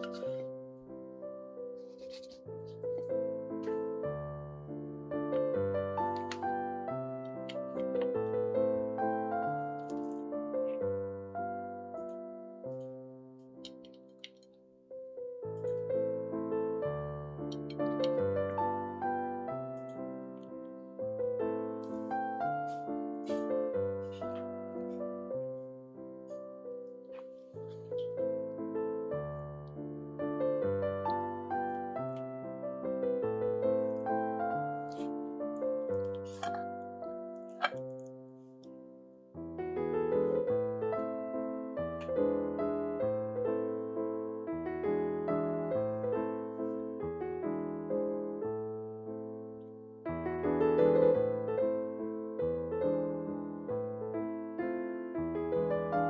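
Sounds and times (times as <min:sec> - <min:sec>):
piano music: 0:00.0 - 0:56.0.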